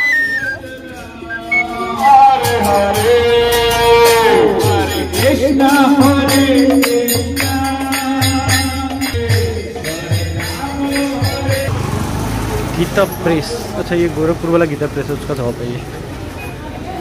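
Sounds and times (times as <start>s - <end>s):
gliding sung melody: 0.0s - 8.1s
jingling percussion: 0.0s - 11.7s.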